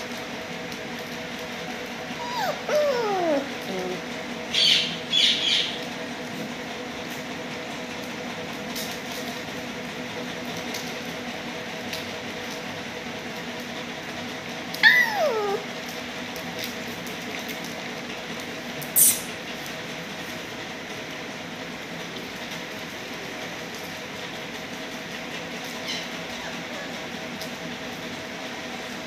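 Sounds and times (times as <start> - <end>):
puppy whining: 2.0 - 4.9, 14.7 - 16.0, 25.8 - 27.1.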